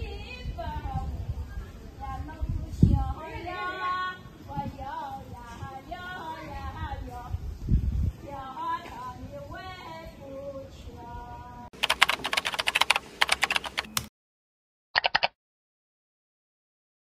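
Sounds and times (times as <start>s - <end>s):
people's voices on street: 0.0s - 9.9s
keyboard typing clicks: 11.8s - 14.1s, 15.0s - 15.4s.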